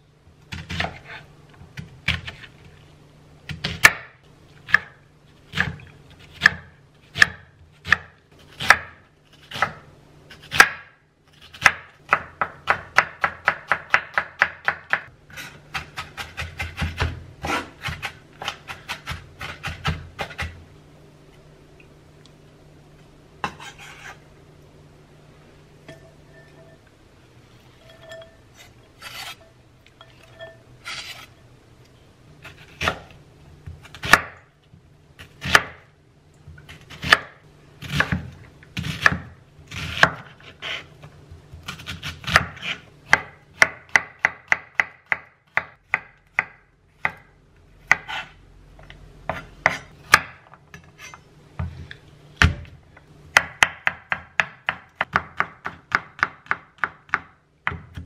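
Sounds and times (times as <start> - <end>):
knife chopping on wooden board: 36.8 - 40.8, 41.6 - 47.2.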